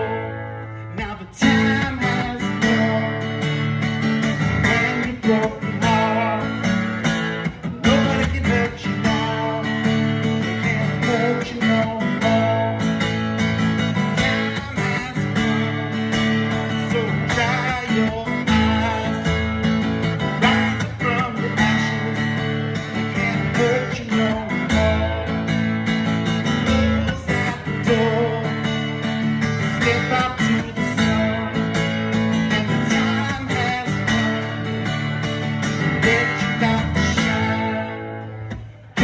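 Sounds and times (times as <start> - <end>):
acoustic guitar strumming: 0.0 - 39.0.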